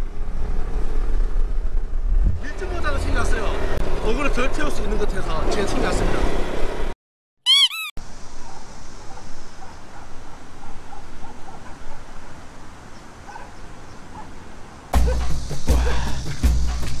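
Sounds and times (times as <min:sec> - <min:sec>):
cartoon squeaks: 0:07.5 - 0:08.0
faint chirps: 0:07.5 - 0:08.0
outdoor background hiss: 0:08.0 - 0:17.0.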